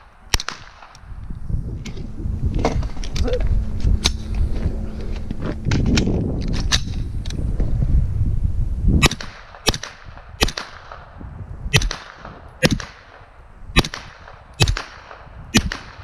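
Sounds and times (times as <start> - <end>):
echoing gunshots: 0.0 - 1.0, 9.0 - 16.0.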